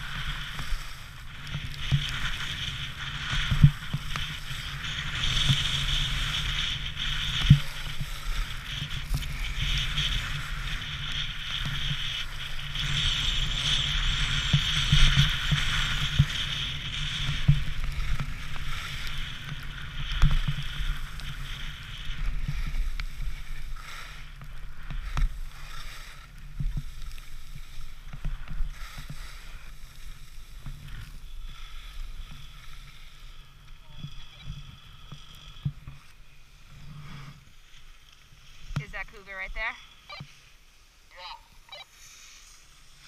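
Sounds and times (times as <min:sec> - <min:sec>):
wind buffeting microphone: 0:00.0 - 0:37.0
skis scraping snow: 0:00.0 - 0:43.0.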